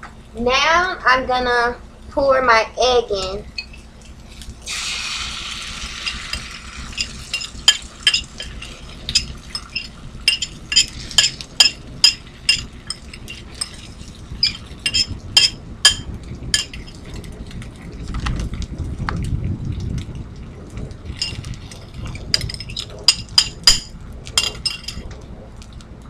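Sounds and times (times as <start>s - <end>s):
egg sizzling in frying pan: 4.2s - 17.0s
utensil clinking on ceramic bowl: 6.0s - 17.0s, 21.2s - 21.4s, 22.4s - 25.1s.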